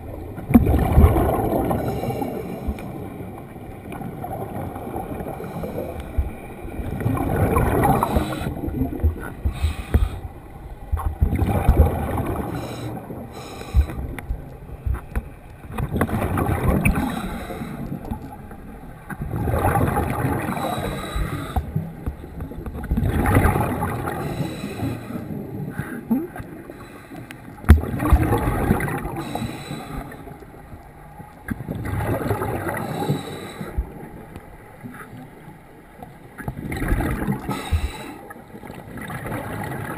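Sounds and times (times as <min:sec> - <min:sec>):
diver exhaling bubbles: 0:04.2 - 0:10.3, 0:11.2 - 0:14.2, 0:15.9 - 0:18.1.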